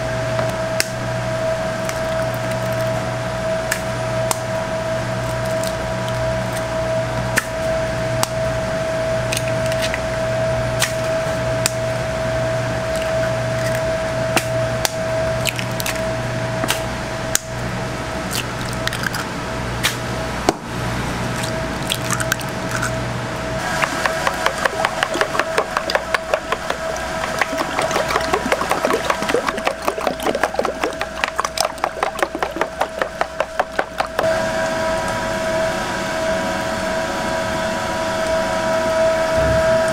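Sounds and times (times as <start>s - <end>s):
eggs cracking on a plastic bowl: 15.4s - 16.0s, 23.7s - 34.3s
steady hum: 21.0s - 34.7s
eggs beaten with a utensil: 23.7s - 34.3s.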